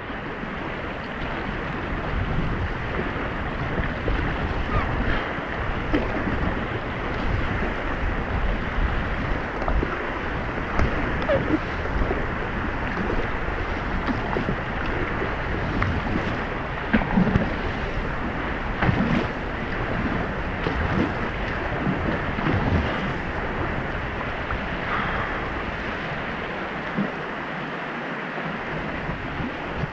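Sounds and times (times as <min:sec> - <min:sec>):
paddle stroke splashes: 0:00.0 - 0:29.9
river current rushing around kayak: 0:00.0 - 0:29.9
wind rumbling on microphone: 0:00.0 - 0:29.9.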